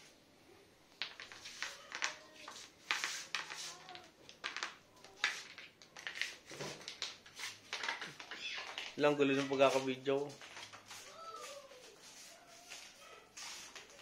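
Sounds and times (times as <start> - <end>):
toy mouse scraping on tile floor: 1.2 - 4.0.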